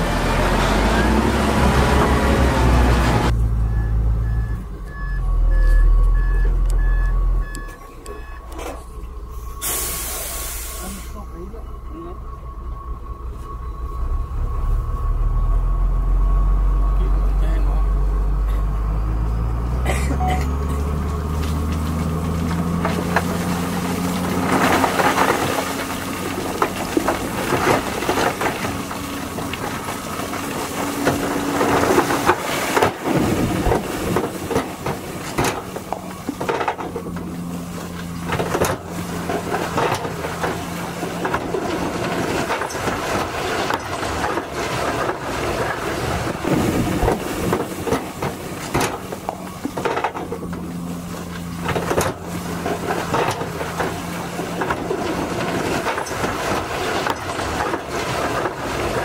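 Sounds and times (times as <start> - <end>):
diesel truck engine running: 0.0 - 59.0
crushed stone rattling and sliding: 20.8 - 59.0.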